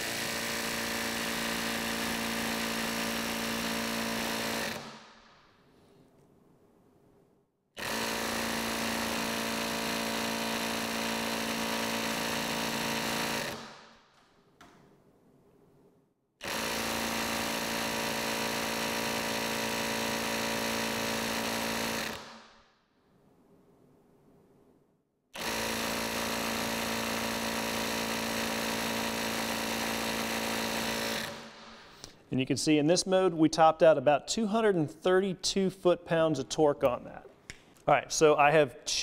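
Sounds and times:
impact wrench hammering: 0.0s - 5.5s, 7.8s - 14.9s, 16.4s - 22.6s, 25.4s - 32.1s.

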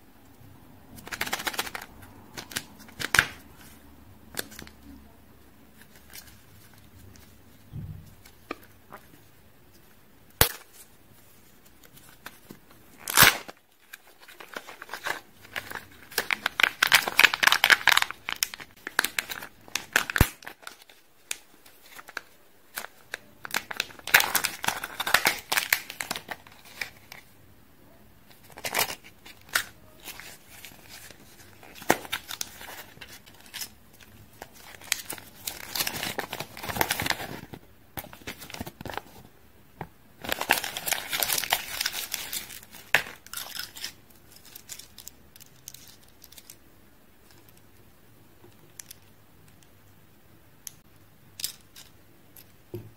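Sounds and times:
foil and wrapper crinkling: 11.8s - 27.2s, 28.4s - 39.2s, 40.2s - 46.6s.

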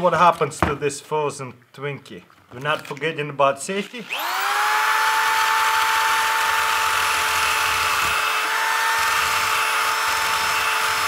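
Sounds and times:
electric drill grinding whine: 3.8s - 11.0s.

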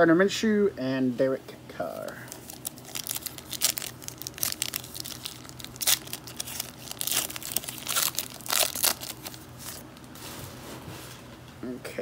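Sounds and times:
plastic wrapper crinkling and tearing: 2.0s - 10.1s.

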